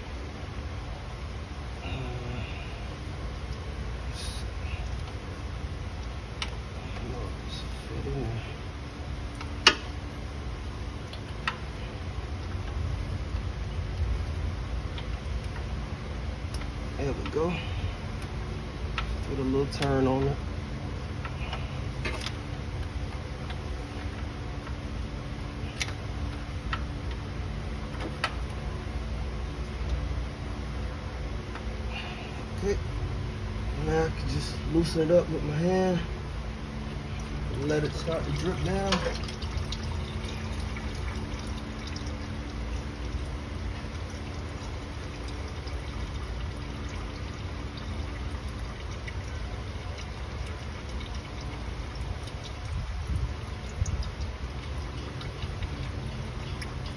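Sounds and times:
low background rumble: 0.0 - 56.9
steady low hum: 0.0 - 56.9
oil trickling into pan: 37.0 - 56.9.

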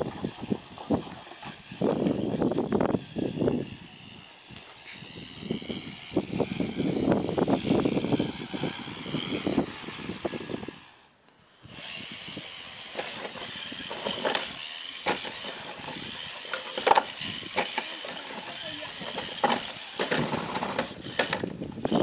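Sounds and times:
high motor whine: 0.0 - 22.0
scrabbling and clicks: 11.7 - 22.0.

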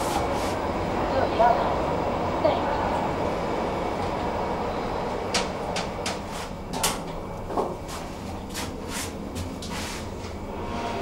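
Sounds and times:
steady low hum: 0.0 - 11.0
sliding doors clicking and clattering: 5.0 - 8.6.

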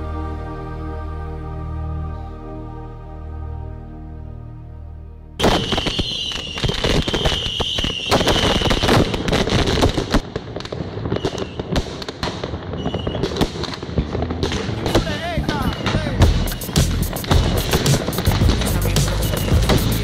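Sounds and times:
high firework whistle: 5.4 - 9.2, 11.1 - 11.7, 12.7 - 13.3, 15.6 - 18.4, 19.0 - 20.0
firework pops and crackles: 5.4 - 20.0
fireworks hissing and crackling: 5.4 - 20.0.

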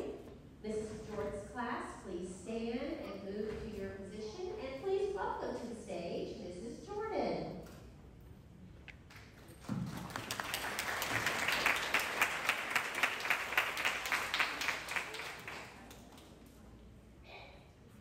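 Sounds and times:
audience applauding: 9.8 - 16.2.

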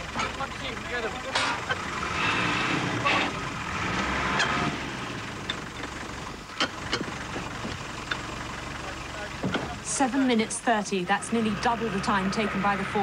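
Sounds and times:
metal knocks of wheel brace: 5.4 - 8.3, 9.4 - 9.8.

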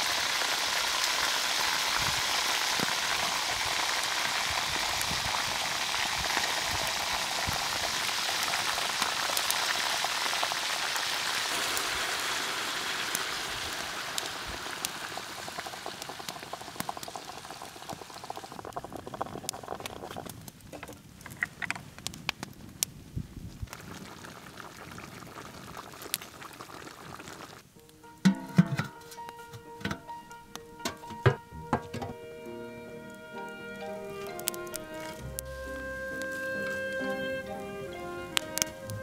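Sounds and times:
meat sizzling in a hot pot: 0.0 - 20.2, 32.4 - 39.0.

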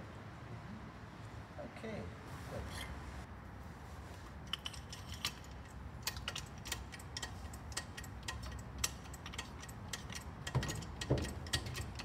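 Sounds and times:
hydraulic jack pump handle clicking: 4.5 - 12.0.

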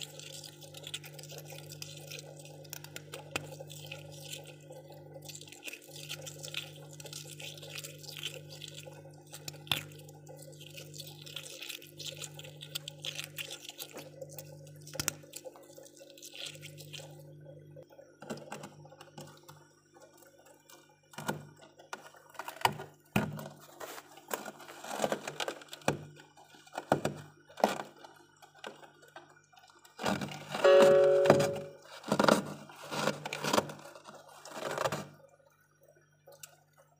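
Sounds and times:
frost cracking and crunching: 0.0 - 17.2, 21.2 - 29.3, 30.0 - 35.2
faint crackle: 23.5 - 36.9
low hum: 30.5 - 31.9.

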